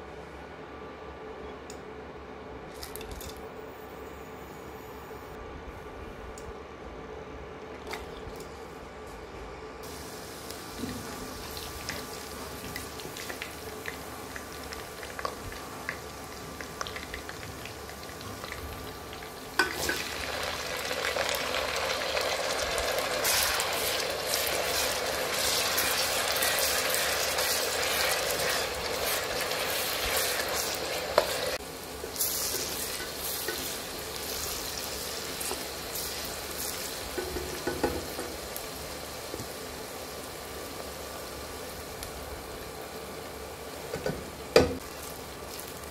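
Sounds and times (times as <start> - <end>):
oil sizzling in a pot: 9.8 - 45.9
onions frying crackly: 9.8 - 45.9.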